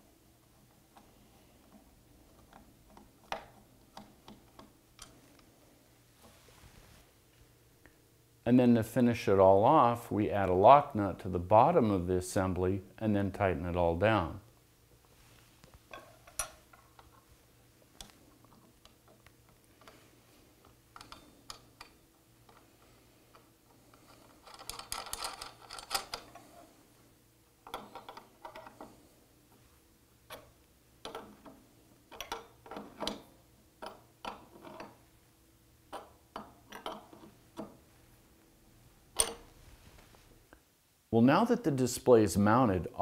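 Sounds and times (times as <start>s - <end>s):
metal clicks and scrapes of wrench: 20.6s - 26.6s.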